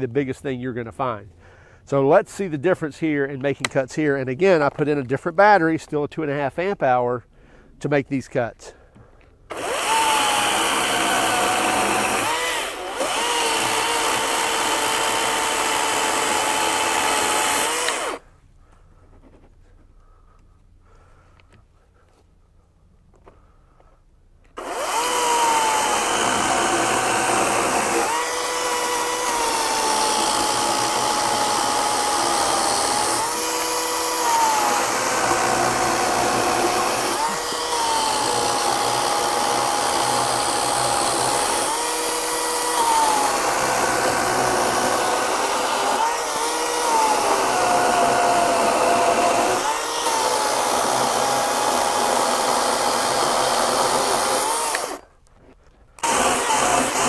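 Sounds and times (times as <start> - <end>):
electric chainsaw cutting log: 9.5 - 18.2, 24.6 - 55.1, 56.0 - 57.0.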